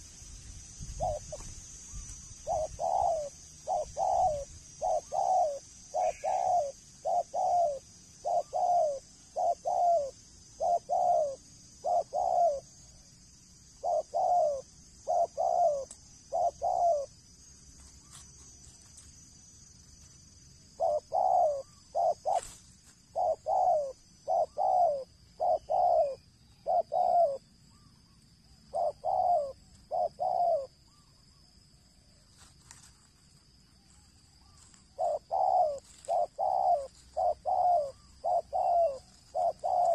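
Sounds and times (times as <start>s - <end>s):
dove cooing: 1.0s - 12.8s, 13.8s - 17.1s, 20.7s - 27.9s, 28.7s - 31.2s, 34.4s - 39.9s.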